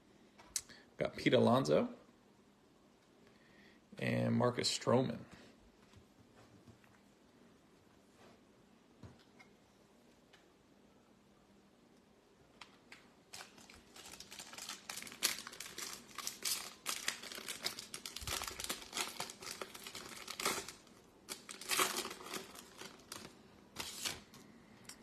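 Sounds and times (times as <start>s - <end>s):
foil wrapper crinkling and tearing: 13.3s - 24.4s.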